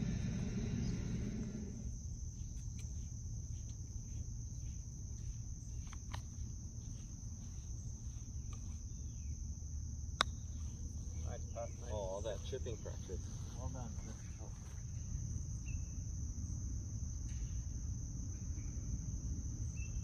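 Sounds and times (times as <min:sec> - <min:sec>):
low rumble: 0:00.0 - 0:02.4
high-pitched insect chorus: 0:00.0 - 0:20.0.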